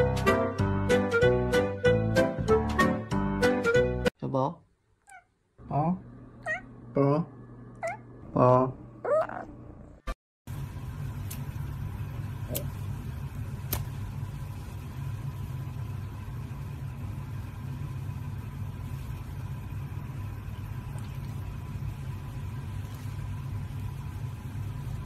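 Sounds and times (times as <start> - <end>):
low hum: 5.6 - 25.0.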